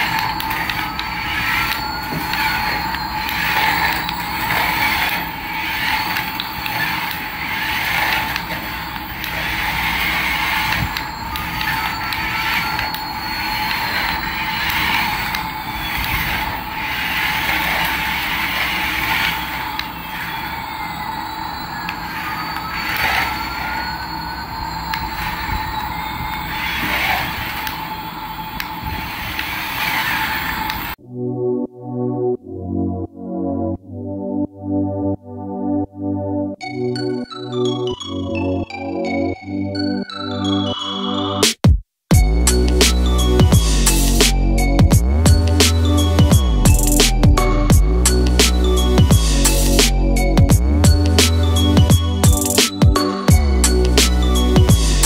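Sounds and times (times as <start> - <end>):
toy electric motor whirring: 0.0 - 31.0, 42.1 - 55.0.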